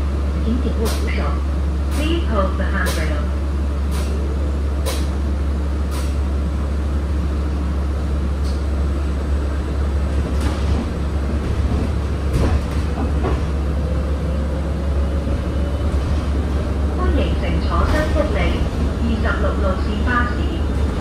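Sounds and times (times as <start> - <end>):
bus rumbling on road: 0.0 - 21.0
rattles and knocks of bus body: 10.0 - 14.0, 15.2 - 19.0.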